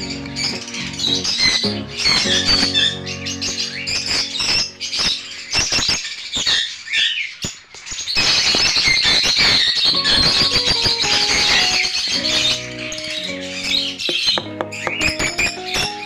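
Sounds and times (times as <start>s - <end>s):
background music: 0.0s - 5.6s, 9.9s - 16.0s
lovebirds chattering and squawking: 0.0s - 16.0s.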